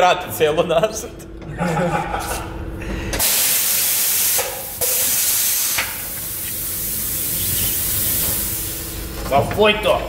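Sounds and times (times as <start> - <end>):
compressed air hissing: 3.2 - 9.2.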